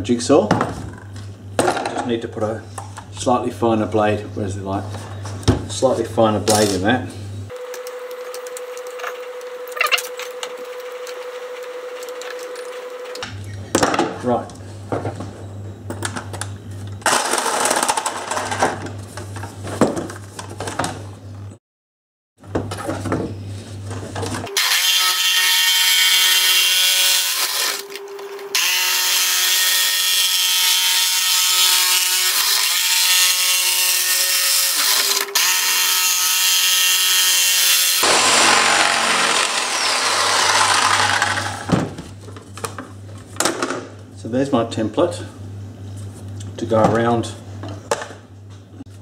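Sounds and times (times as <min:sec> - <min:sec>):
jigsaw motor whining: 0:26.3 - 0:29.3, 0:38.0 - 0:41.8.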